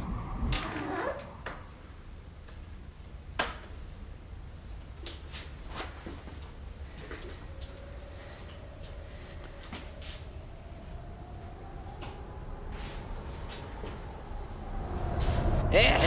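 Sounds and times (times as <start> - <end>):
low steady rumble: 0.0 - 16.0
faint steady tone: 6.3 - 15.7.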